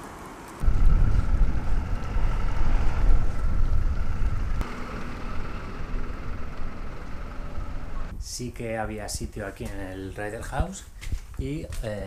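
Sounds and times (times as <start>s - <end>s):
road noise: 0.0s - 8.2s
wind buffeting microphone: 0.6s - 8.3s.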